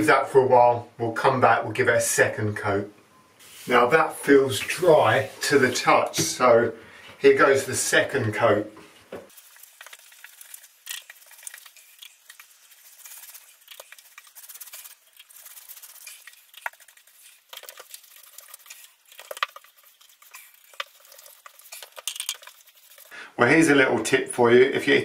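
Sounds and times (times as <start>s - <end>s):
paintbrush swishing: 3.4s - 6.2s, 9.3s - 23.1s.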